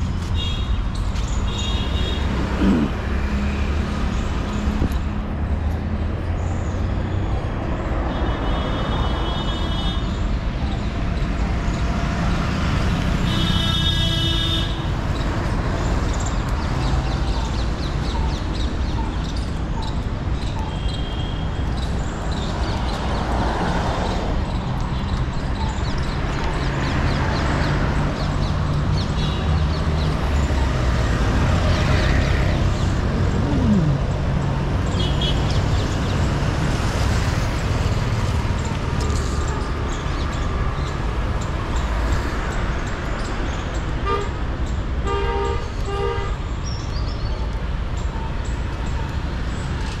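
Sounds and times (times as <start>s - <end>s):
road traffic: 0.0s - 50.0s
vehicle horn: 13.2s - 14.8s.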